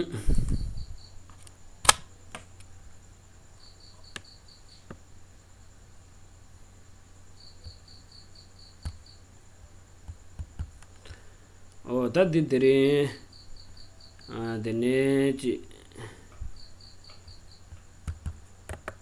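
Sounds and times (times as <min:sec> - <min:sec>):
sharp clicks: 0:01.4 - 0:02.7.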